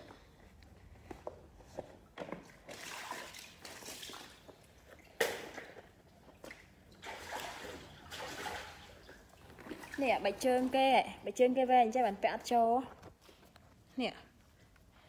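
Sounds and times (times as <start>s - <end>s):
water splashing and sloshing: 2.0s - 11.5s.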